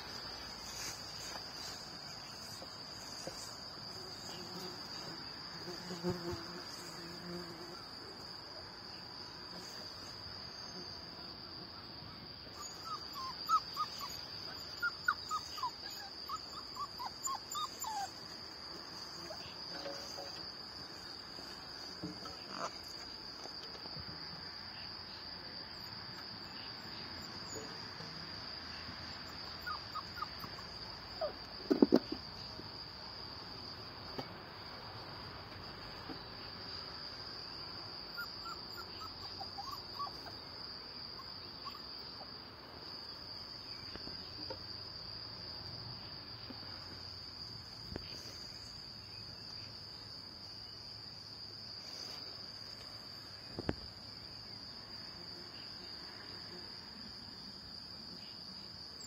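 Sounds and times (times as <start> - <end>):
puppies whimpering: 12.6 - 14.2, 14.8 - 18.2, 38.2 - 40.3.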